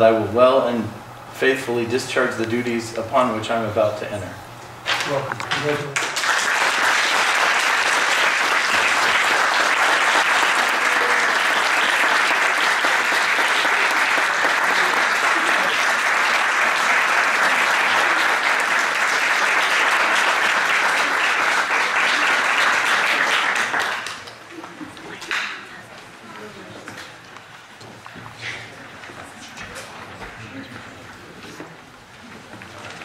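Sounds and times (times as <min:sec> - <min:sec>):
people applauding: 0:04.9 - 0:25.6.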